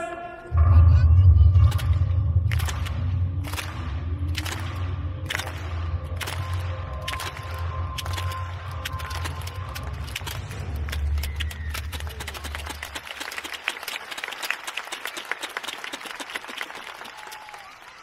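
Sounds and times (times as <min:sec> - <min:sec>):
low rumble: 0:00.5 - 0:12.1
crowd clapping: 0:01.6 - 0:18.0.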